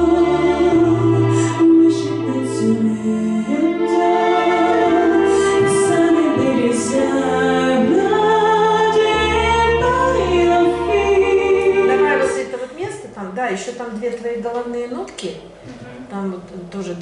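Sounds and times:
woman singing: 0.0s - 13.0s.

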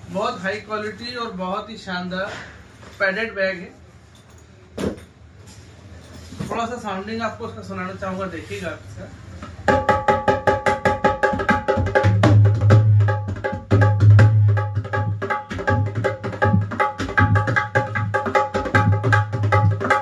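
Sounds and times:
hand drum treble strokes: 9.6s - 20.0s
deep hand drum bass notes: 9.7s - 20.0s.

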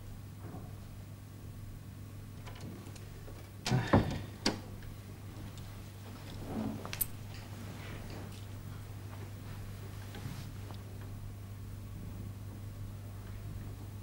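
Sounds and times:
low electrical hum: 0.0s - 14.0s
soft shuffle: 5.3s - 11.0s.

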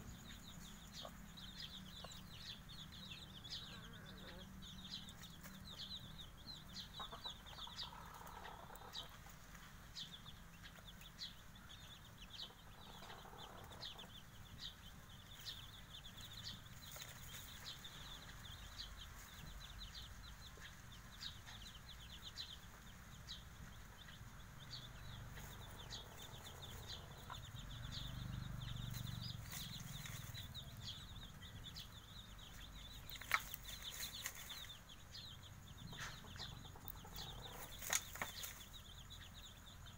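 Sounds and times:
chicks peeping: 0.0s - 39.9s
hen clucking softly: 6.9s - 9.4s.

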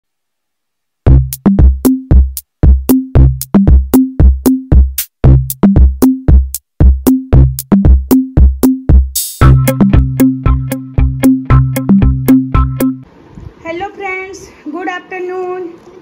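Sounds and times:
electronic music with drum machine: 1.1s - 13.0s.

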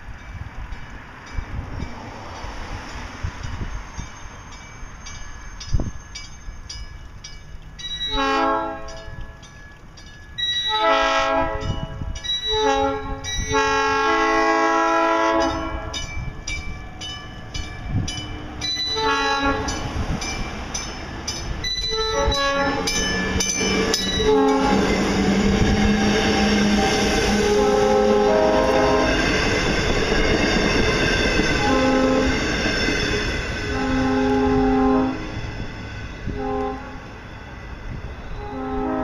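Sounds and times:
train cars rumbling: 0.0s - 39.0s
train horn blasts: 8.1s - 9.2s, 10.6s - 16.0s, 18.8s - 19.8s, 21.9s - 23.0s, 24.0s - 29.4s, 31.6s - 32.5s, 33.6s - 35.3s, 36.2s - 37.2s, 38.3s - 39.0s.

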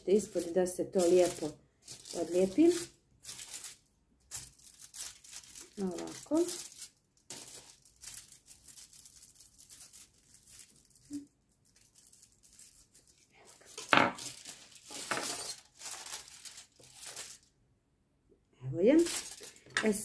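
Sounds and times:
foil sheet crinkling: 0.0s - 17.5s, 19.0s - 20.0s
spatula scraping: 13.8s - 15.7s.

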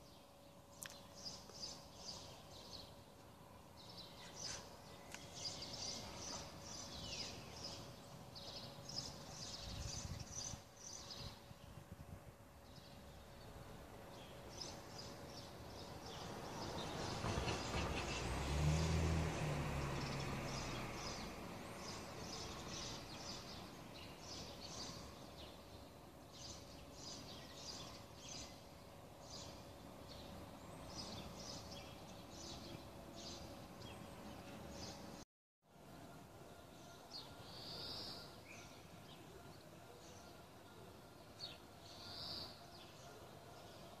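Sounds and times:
small birds chirping: 0.0s - 11.8s, 19.9s - 35.2s
outdoor background noise: 0.0s - 44.0s
vehicle passing: 16.1s - 23.6s.

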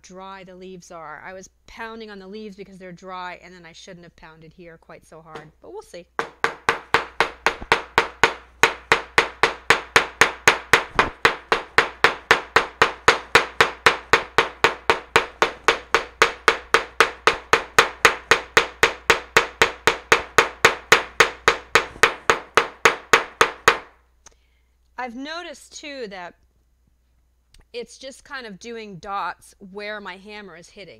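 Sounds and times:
hammer pounding on paper: 6.2s - 24.0s.

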